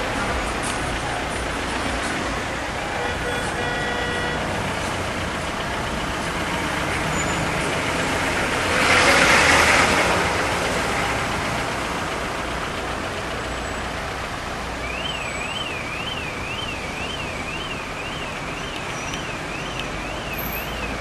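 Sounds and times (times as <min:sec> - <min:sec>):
car engine and tyre noise: 0:00.0 - 0:21.0
loud rushing vehicle: 0:04.4 - 0:14.8.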